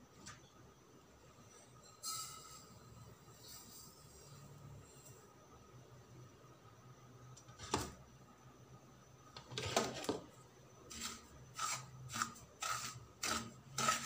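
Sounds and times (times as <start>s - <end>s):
wooden spatula scraping a pan: 10.9s - 14.0s.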